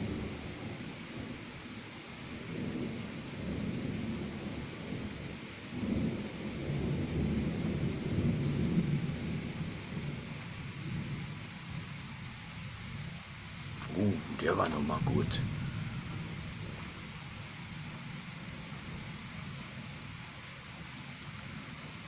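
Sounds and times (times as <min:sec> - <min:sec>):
steady background hiss: 0:00.0 - 0:22.0
distant thunder rumbling: 0:02.4 - 0:11.9, 0:12.7 - 0:20.2.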